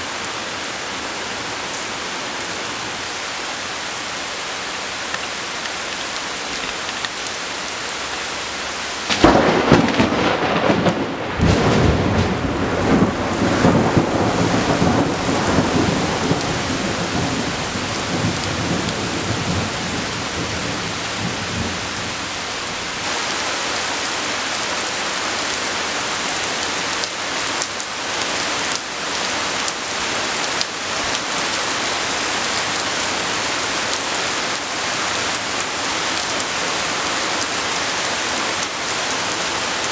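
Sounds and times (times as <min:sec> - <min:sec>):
heavy rain falling: 0:00.0 - 0:39.9
sharp thunderclap: 0:09.1 - 0:17.5
rolling thunder: 0:09.1 - 0:22.1.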